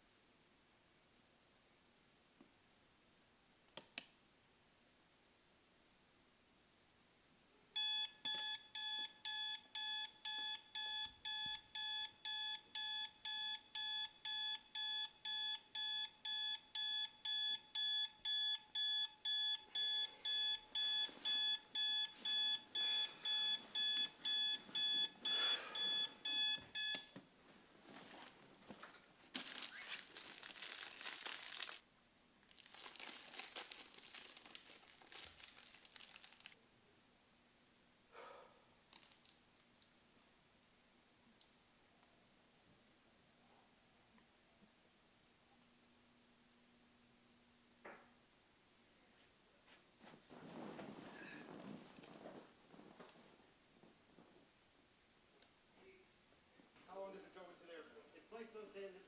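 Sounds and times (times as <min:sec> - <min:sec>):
digital alarm clock beeping: 0:07.8 - 0:27.2
plastic snack bag crinkling: 0:28.0 - 0:31.8, 0:32.4 - 0:36.6, 0:38.9 - 0:39.4.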